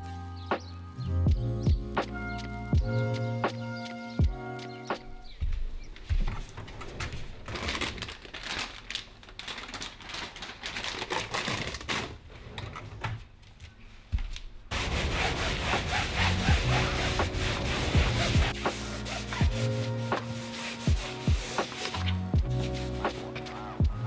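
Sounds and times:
cloth rubbing and rustling: 0:14.7 - 0:23.8
scrubbing mat with a wipe: 0:14.7 - 0:23.8.

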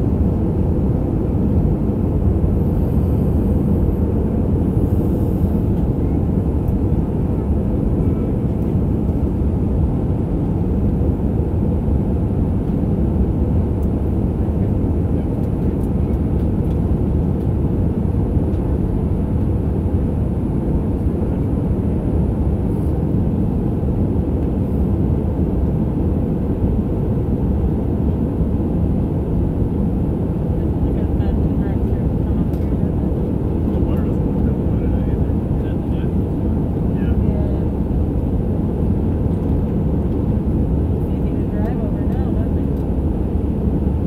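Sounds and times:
jet engine cabin noise: 0:00.0 - 0:44.0.

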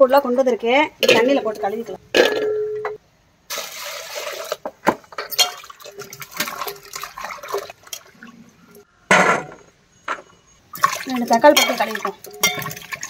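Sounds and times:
water sloshing and splashing: 0:03.5 - 0:08.9, 0:10.7 - 0:13.0.

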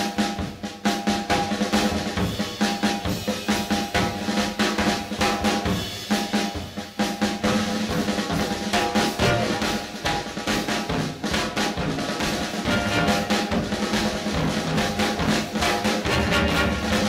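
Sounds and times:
drum kit playing with rolls: 0:00.0 - 0:17.0
sustained pitched instruments: 0:12.6 - 0:13.6, 0:16.0 - 0:17.0.

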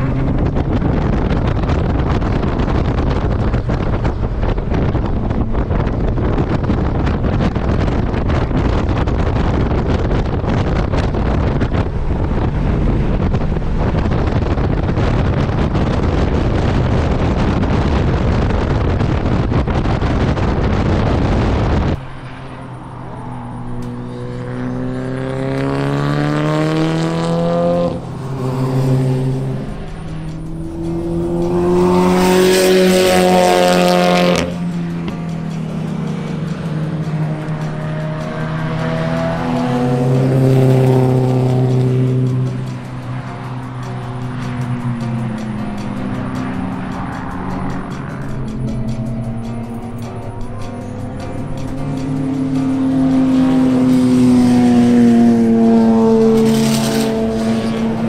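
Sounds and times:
car engine accelerating hard: 0:00.0 - 0:58.0
wind and road rush: 0:00.0 - 0:58.0.

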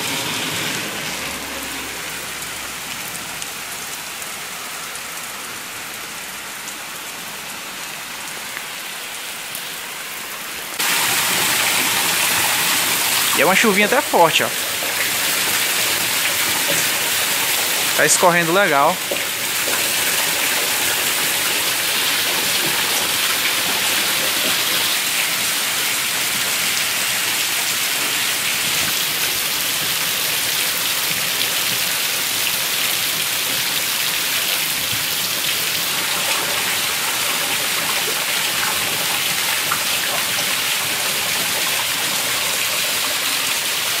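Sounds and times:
heavy rain falling: 0:00.0 - 0:44.0
water pouring from roof spout: 0:10.8 - 0:44.0.

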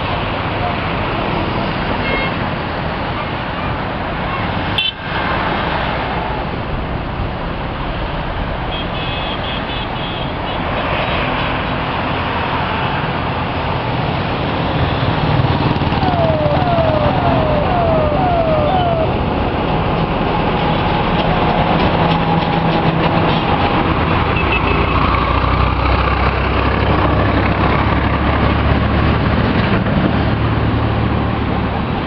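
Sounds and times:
highway traffic passing: 0:00.0 - 0:32.0.

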